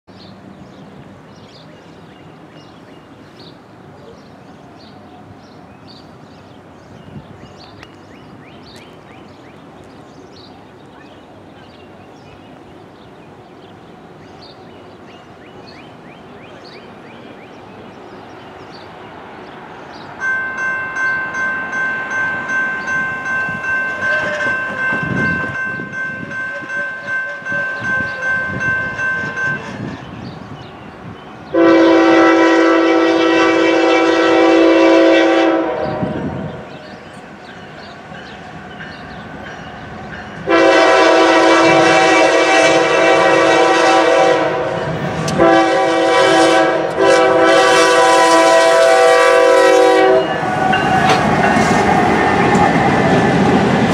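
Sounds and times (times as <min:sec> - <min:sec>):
crossing warning bell ringing: 0:20.2 - 0:30.1, 0:36.0 - 0:42.4, 0:49.5 - 0:51.8
locomotive air horn blast: 0:23.9 - 0:25.0, 0:26.2 - 0:28.3, 0:31.5 - 0:36.7, 0:40.4 - 0:50.8.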